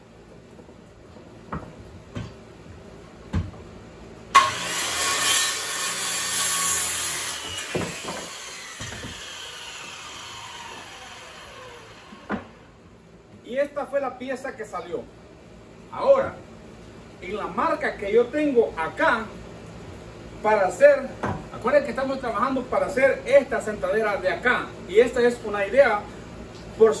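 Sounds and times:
circular saw cutting wood: 0:04.3 - 0:12.6
saw blade spinning down: 0:04.4 - 0:12.3.

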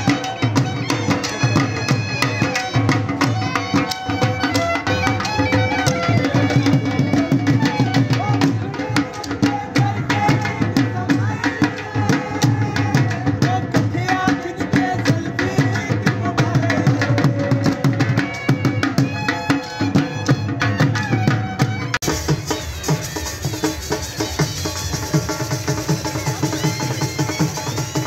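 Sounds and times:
folk melody: 0:00.0 - 0:10.7.

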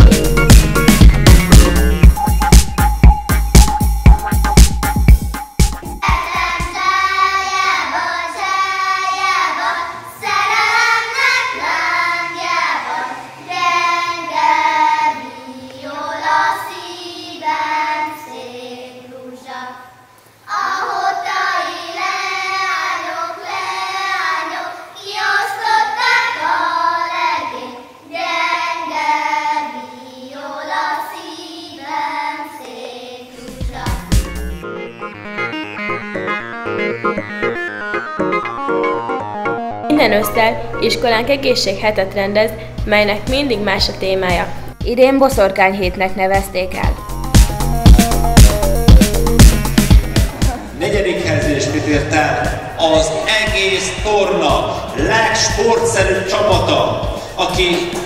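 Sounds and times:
girls singing folk song: 0:06.0 - 0:34.5.

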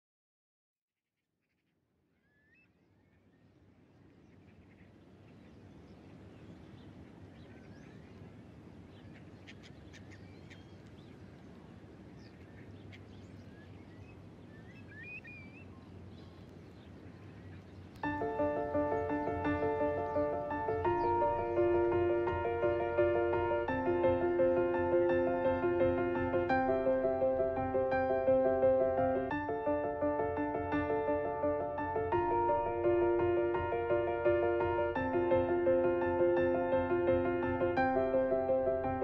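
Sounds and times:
bird chirps: 0:01.4 - 0:26.9
music: 0:18.0 - 0:39.0.

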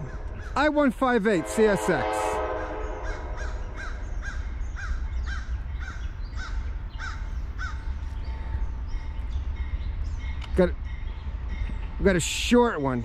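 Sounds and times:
crow cawing: 0:00.0 - 0:00.6, 0:02.6 - 0:08.0
steady low rumble: 0:00.0 - 0:13.0.

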